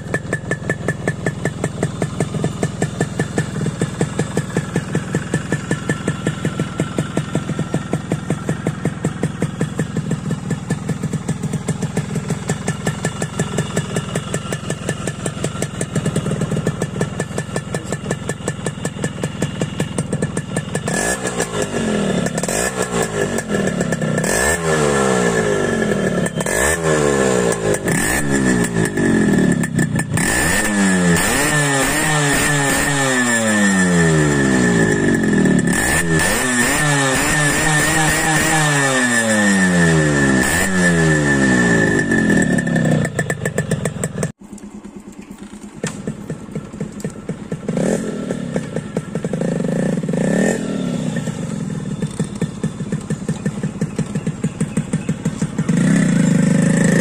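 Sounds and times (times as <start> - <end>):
two-stroke engine idling: 0.0 - 57.0
engine throttle blips: 34.0 - 57.0.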